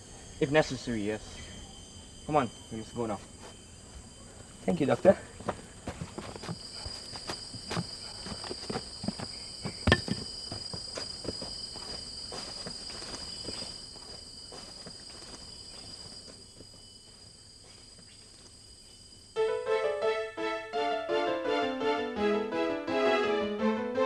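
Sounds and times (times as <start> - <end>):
insects droning: 0.0 - 24.0
footsteps walking away: 5.0 - 18.2.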